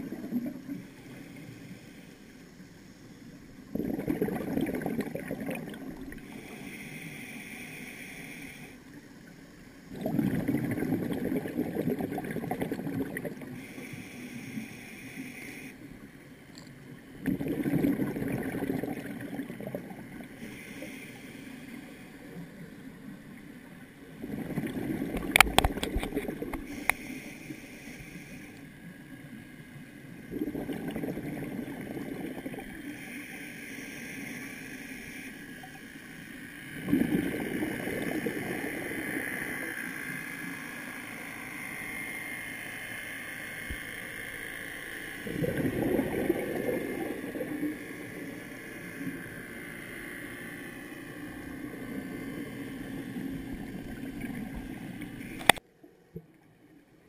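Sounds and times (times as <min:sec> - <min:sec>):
steady low hiss: 0:00.0 - 0:11.6, 0:12.2 - 0:57.0
underwater regulator bubbling: 0:03.7 - 0:06.4, 0:09.9 - 0:13.5, 0:16.6 - 0:20.2, 0:24.2 - 0:27.1, 0:30.3 - 0:32.9, 0:36.8 - 0:39.6, 0:45.2 - 0:47.8.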